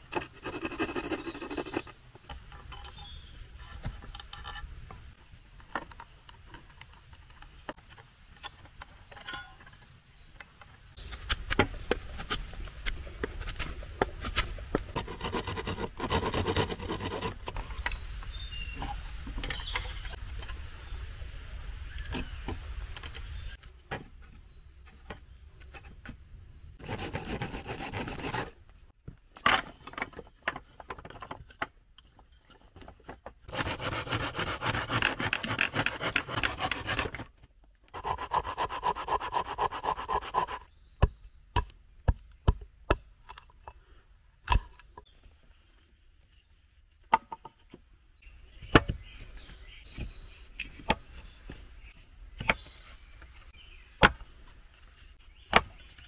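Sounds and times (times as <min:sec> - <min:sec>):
hand saw cutting dry wood: 0:00.1 - 0:01.9, 0:15.0 - 0:17.6, 0:26.8 - 0:28.6, 0:33.5 - 0:37.2, 0:37.9 - 0:40.7.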